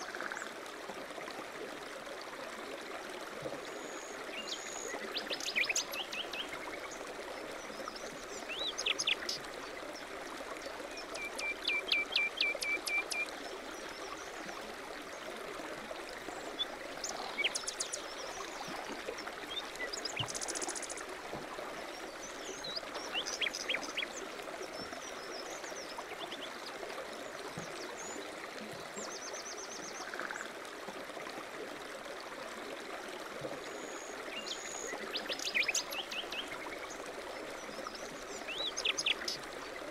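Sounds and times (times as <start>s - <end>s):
stream babbling: 0.0s - 39.9s.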